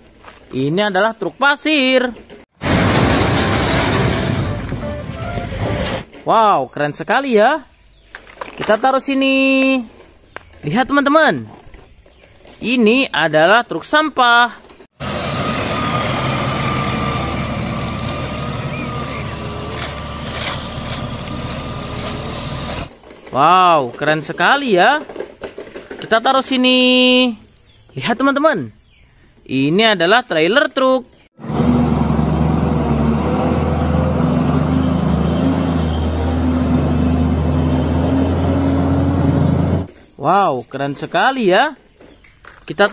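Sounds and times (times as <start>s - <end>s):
road noise: 0.0s - 13.9s, 14.5s - 28.0s, 31.2s - 42.9s
diesel engine rumble: 2.6s - 6.1s, 15.0s - 24.0s, 31.3s - 40.2s.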